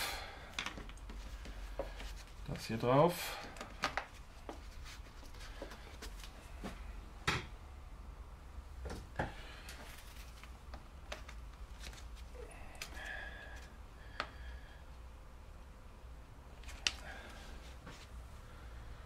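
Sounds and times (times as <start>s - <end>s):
plastic parts clicking and knocking: 0.5s - 1.6s, 3.5s - 4.2s.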